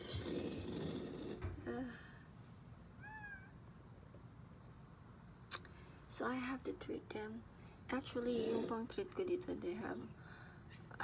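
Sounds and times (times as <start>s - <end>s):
cat meowing: 3.0s - 3.6s.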